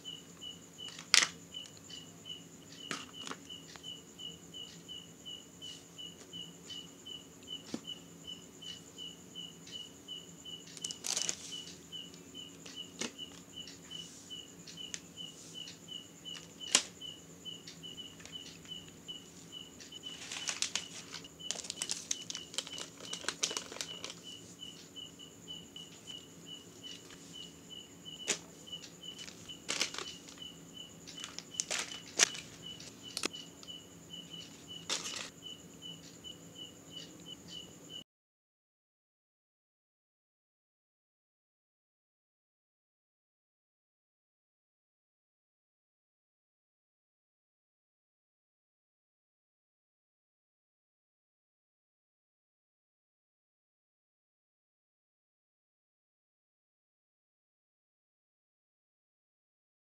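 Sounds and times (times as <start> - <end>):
plastic packaging crinkling: 10.8 - 11.4, 20.1 - 24.2, 29.2 - 30.2, 31.2 - 33.3.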